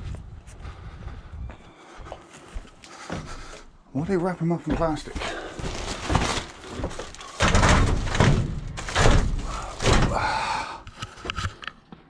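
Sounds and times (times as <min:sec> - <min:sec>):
plastic crackling and rustling: 0:05.6 - 0:10.1
metal knocks and thuds: 0:06.0 - 0:10.2.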